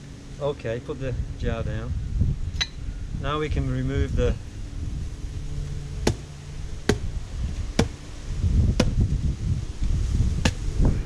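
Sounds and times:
blade chopping coconut husk: 0:05.9 - 0:09.2, 0:10.4 - 0:10.8.

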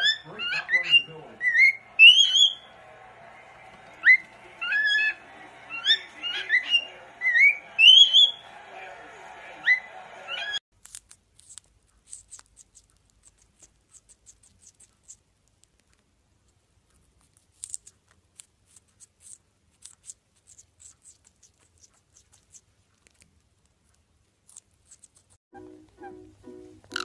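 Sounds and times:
cockatiel whistle: 0:00.0 - 0:02.8, 0:04.0 - 0:08.5
parakeet beak clicks and snips: 0:10.8 - 0:16.1, 0:16.9 - 0:23.8, 0:24.4 - 0:25.4.

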